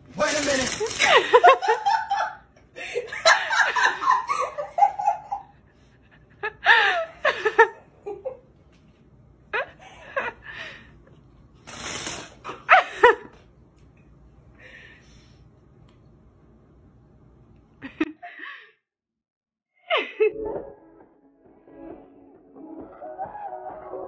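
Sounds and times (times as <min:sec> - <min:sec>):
people laughing: 0:00.9 - 0:08.4.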